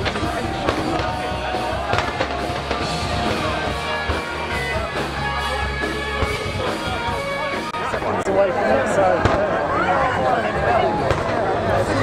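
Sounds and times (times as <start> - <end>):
rock music with drums: 0.0 - 8.2.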